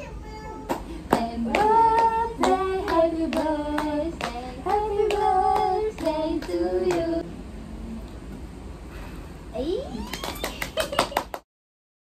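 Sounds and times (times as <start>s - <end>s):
hand claps: 0.7s - 7.1s, 10.1s - 11.5s
voices singing: 1.1s - 7.3s.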